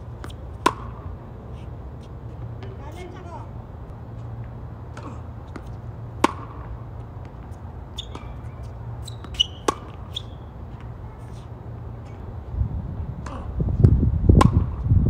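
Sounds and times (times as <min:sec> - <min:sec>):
tennis ball hit with racket: 0:00.2 - 0:01.2, 0:04.9 - 0:11.4, 0:13.2 - 0:13.5, 0:14.4 - 0:14.8
shoe squeaks on court: 0:07.9 - 0:10.5.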